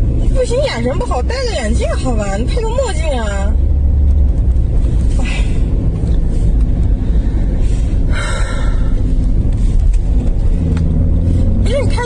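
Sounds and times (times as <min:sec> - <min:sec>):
car engine and road rumble: 0:00.0 - 0:12.0.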